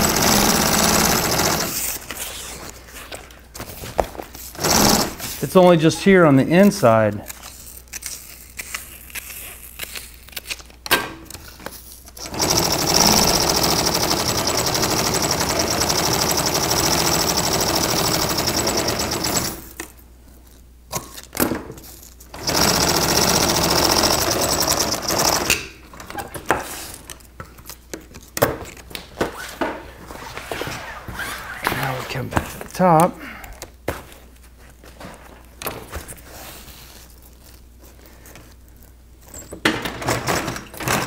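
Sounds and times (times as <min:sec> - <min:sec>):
sewing machine stitching: 0:00.0 - 0:02.0, 0:04.6 - 0:05.3, 0:12.2 - 0:19.7, 0:22.4 - 0:25.6.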